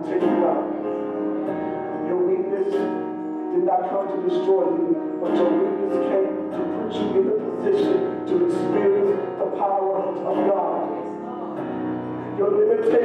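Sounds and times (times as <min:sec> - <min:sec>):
worship band music: 0:00.0 - 0:13.0.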